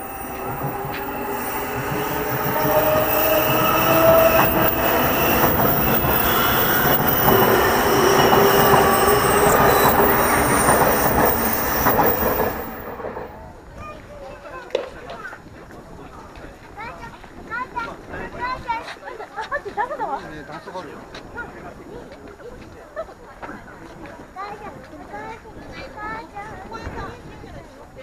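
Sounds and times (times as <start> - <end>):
sharp clicks of train: 0.0 - 13.4
electric train passing: 0.0 - 13.7.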